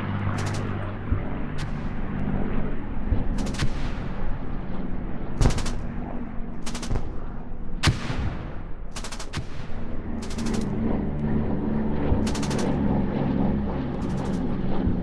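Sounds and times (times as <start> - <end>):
low drone and rumble: 0.0 - 15.0
machine-gun bursts: 0.3 - 0.7, 5.4 - 5.9, 6.7 - 7.0, 9.0 - 9.4, 10.2 - 10.7, 12.3 - 12.8.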